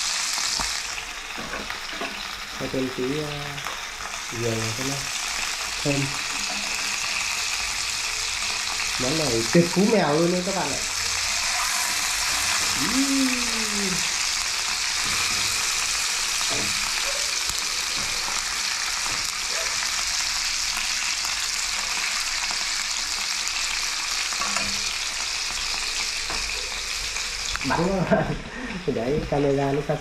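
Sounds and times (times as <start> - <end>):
meat sizzling in hot oil: 0.0 - 30.0
chopsticks turning meat in pan: 0.2 - 26.8.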